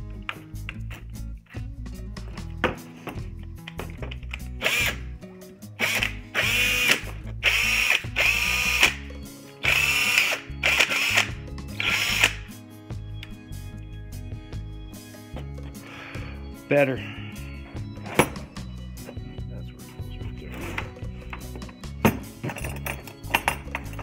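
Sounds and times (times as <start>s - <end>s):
cordless drill spinning up: 4.6s - 5.0s, 5.8s - 9.0s, 9.6s - 12.5s.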